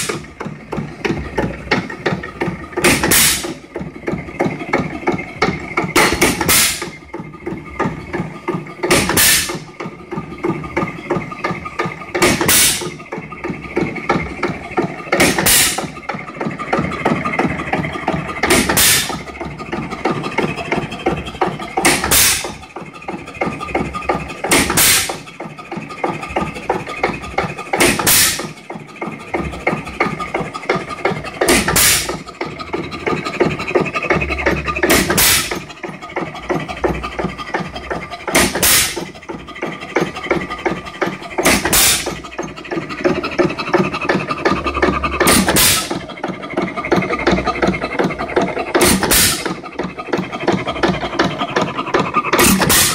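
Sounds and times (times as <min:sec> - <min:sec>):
engine firing bang: 0:00.0 - 0:22.6, 0:23.7 - 0:25.3, 0:27.1 - 0:28.6, 0:29.3 - 0:37.0, 0:38.3 - 0:39.2, 0:39.9 - 0:51.4, 0:52.3 - 0:52.9
mechanical clatter of valve gear: 0:26.1 - 0:52.9.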